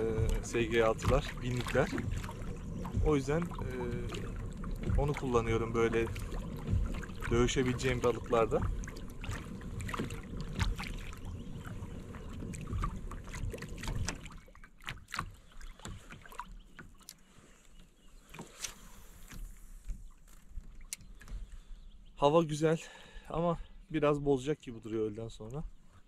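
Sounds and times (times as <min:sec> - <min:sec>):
low rumble: 0:00.0 - 0:14.4
water lapping against hull: 0:00.0 - 0:26.0.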